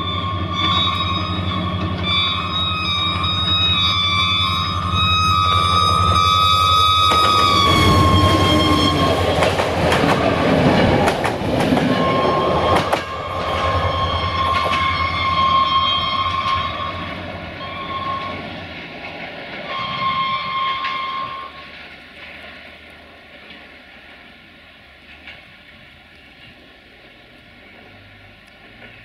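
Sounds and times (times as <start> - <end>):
locomotive multi-tone horn: 0.0 - 10.5, 11.8 - 18.8, 19.6 - 21.8
diesel engine low rumble: 0.0 - 19.6, 21.4 - 29.0
train wheels clattering on rail joints: 0.0 - 24.2, 24.9 - 26.6, 27.7 - 29.0.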